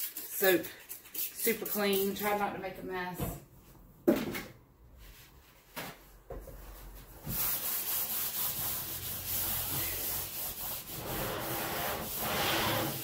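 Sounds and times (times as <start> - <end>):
paper towel wiping tabletop: 6.7 - 13.0.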